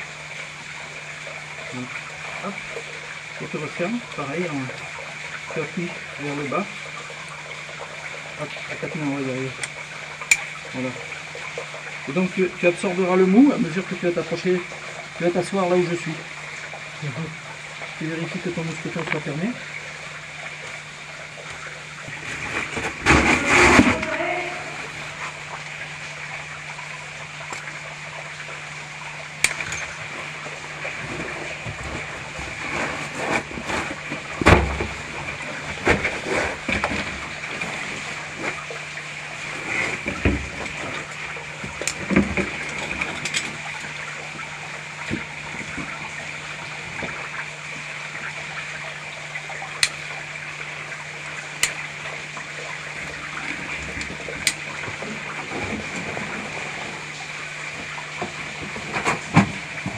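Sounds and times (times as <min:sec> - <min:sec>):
steady hiss and low hum: 0:00.0 - 0:59.9
clothing scraping against rock: 0:22.2 - 0:24.2.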